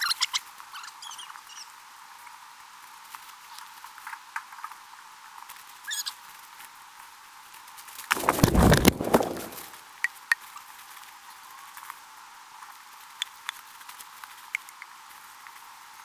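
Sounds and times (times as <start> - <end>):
knocking and rustling: 8.1 - 9.7
boots on dry leaves and twigs: 8.2 - 9.7.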